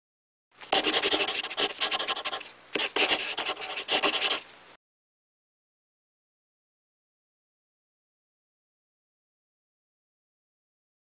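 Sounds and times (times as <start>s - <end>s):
pen scribbling on paper: 0.7s - 4.4s.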